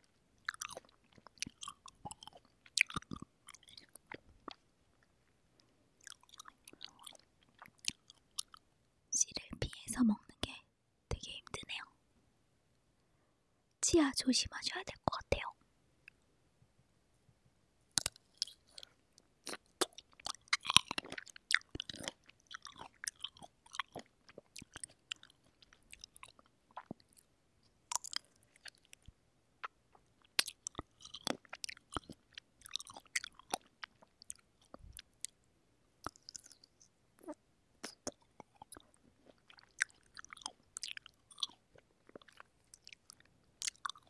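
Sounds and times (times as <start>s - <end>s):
mouth and lip clicks: 0.4s - 4.6s, 17.9s - 27.3s, 27.9s - 35.4s, 36.0s - 41.6s, 42.2s - 44.0s
wet chewing of cherries: 0.4s - 8.6s, 18.0s - 27.3s, 27.9s - 35.4s, 36.0s - 44.0s.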